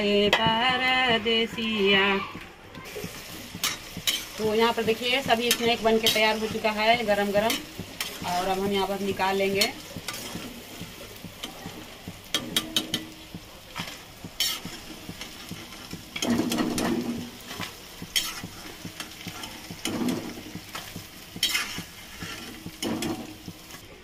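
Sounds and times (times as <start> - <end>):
chicken sizzling in hot oil: 2.8 - 24.0
metal spoon clinking against pan: 12.3 - 13.2.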